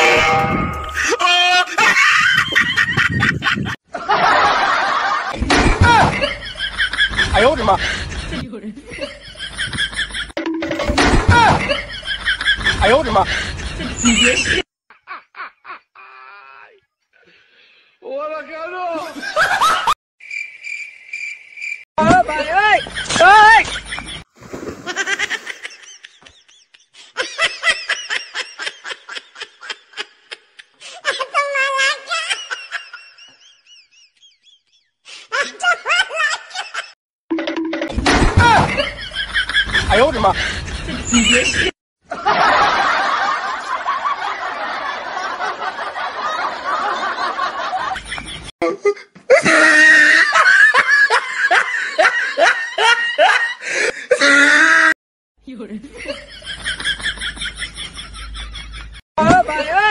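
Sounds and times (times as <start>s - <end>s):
person laughing hard: 0.9s - 6.4s, 13.8s - 16.6s, 48.8s - 55.0s
several voices laughing: 0.9s - 10.4s, 11.3s - 16.8s, 18.9s - 20.0s, 22.5s - 37.0s, 38.4s - 55.0s.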